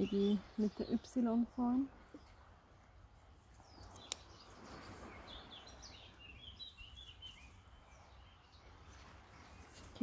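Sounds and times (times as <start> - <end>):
bird chirping: 3.5 - 10.0.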